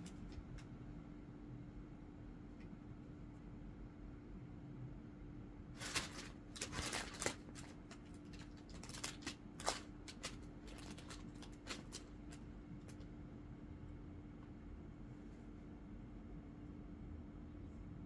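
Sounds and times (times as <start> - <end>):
paper crinkling under a cat: 0.0 - 0.7, 5.7 - 13.2.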